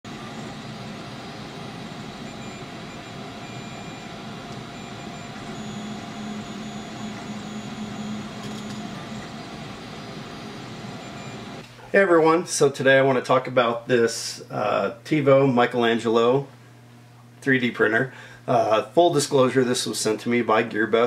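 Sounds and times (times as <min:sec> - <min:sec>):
printer motor tones: 0:00.1 - 0:11.6
low hum: 0:00.1 - 0:11.7
fan hiss: 0:00.1 - 0:21.0.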